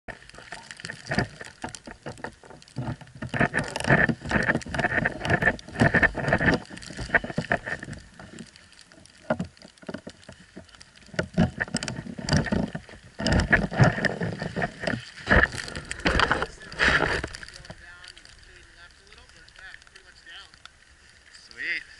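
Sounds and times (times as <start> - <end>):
ski clothing rustling: 0.1 - 21.9
snow crunching and scuffing: 14.4 - 18.6.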